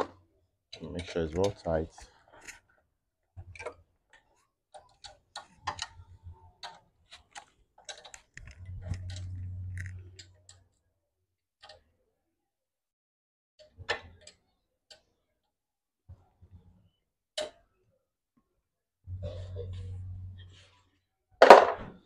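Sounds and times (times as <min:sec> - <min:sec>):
low hum: 0:08.4 - 0:10.5, 0:19.1 - 0:20.6.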